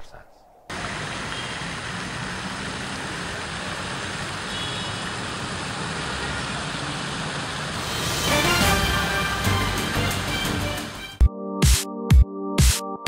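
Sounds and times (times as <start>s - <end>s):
traffic noise: 0.7s - 11.2s
music: 7.8s - 13.0s.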